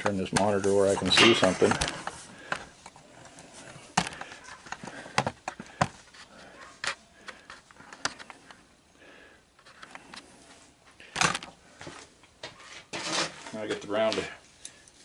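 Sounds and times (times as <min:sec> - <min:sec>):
hand tools clicking and knocking: 0:00.0 - 0:02.7.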